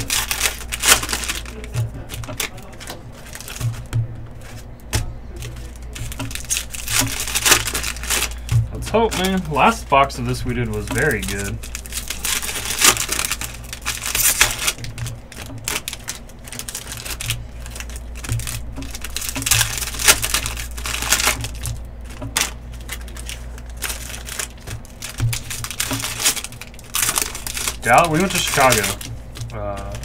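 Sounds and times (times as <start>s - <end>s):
foil wrappers crinkling and tearing: 0.0s - 30.0s.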